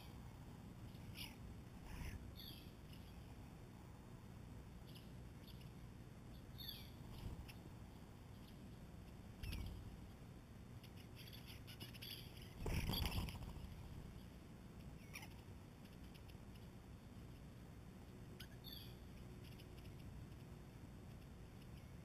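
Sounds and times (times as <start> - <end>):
songbird calls and chirps: 0.0 - 3.6, 4.8 - 10.0, 10.8 - 14.4, 15.0 - 16.7, 18.4 - 20.5
rustle: 0.0 - 22.0.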